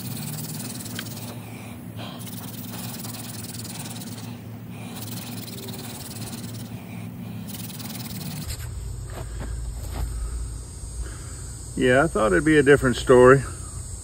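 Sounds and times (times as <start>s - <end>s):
wooden spindle rasping on board: 0.0s - 1.4s, 2.0s - 6.8s, 7.4s - 8.5s.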